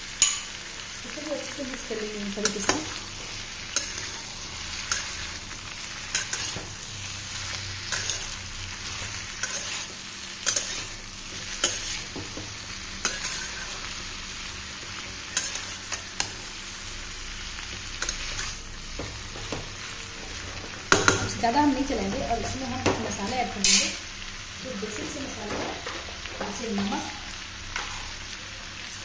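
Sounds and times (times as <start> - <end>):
vegetables sizzling in oil: 0.0 - 29.0
metal spatula scraping a wok: 2.4 - 12.2, 13.0 - 14.0, 15.0 - 16.4, 23.6 - 24.0.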